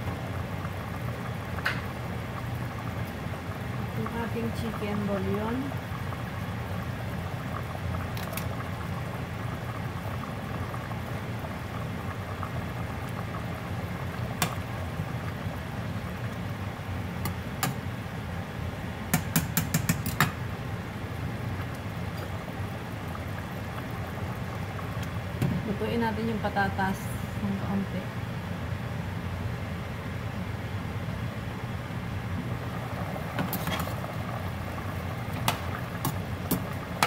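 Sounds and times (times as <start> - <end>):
stew bubbling: 0.0 - 27.3, 32.2 - 37.0
spoon knocking against pot: 19.2 - 20.4.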